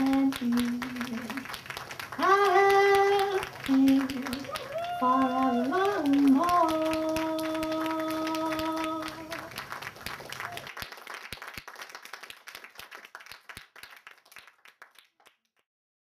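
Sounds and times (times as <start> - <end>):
audience applause: 0.0 - 15.4
singer holding a note: 2.2 - 9.5.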